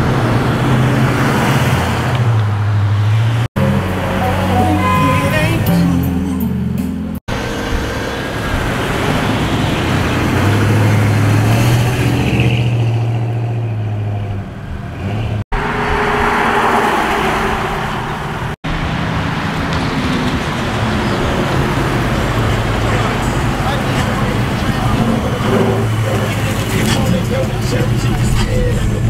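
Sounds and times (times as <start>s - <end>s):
cars driving past: 0.0s - 29.0s.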